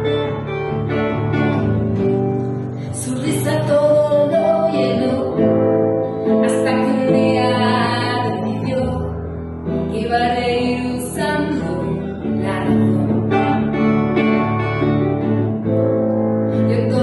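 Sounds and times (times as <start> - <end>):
acoustic guitar: 0.0 - 17.0
women singing: 2.9 - 5.5, 6.4 - 9.0, 9.9 - 13.3.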